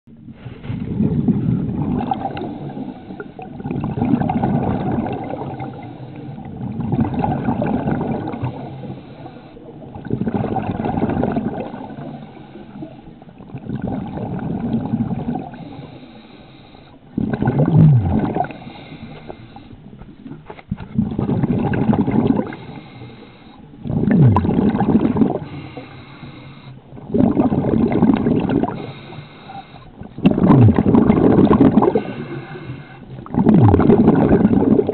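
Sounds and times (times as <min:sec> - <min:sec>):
regulator bubbles underwater: 0:00.1 - 0:34.9
falling gurgle: 0:00.9 - 0:08.8, 0:09.8 - 0:12.2, 0:13.4 - 0:15.6, 0:17.2 - 0:18.7, 0:21.0 - 0:22.7, 0:23.8 - 0:25.6, 0:27.0 - 0:28.9, 0:30.0 - 0:34.9.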